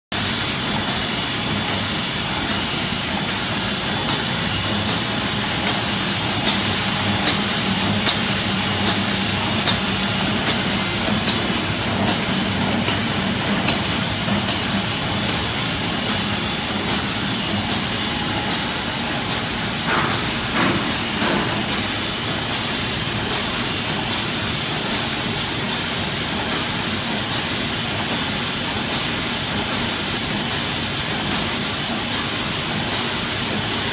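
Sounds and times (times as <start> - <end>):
gluing machine running: 0.2 - 27.4
louder mechanical knocks: 4.0 - 23.4.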